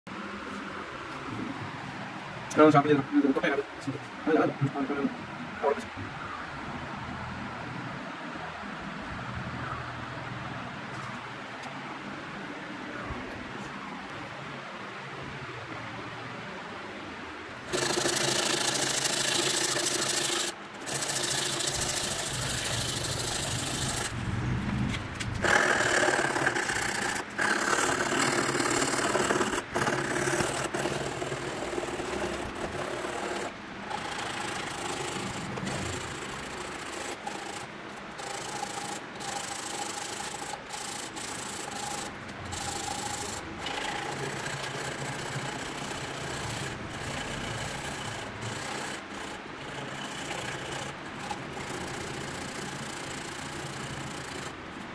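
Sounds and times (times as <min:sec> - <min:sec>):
sanding scraping on racket frame: 0:17.7 - 0:24.1, 0:25.4 - 0:37.6.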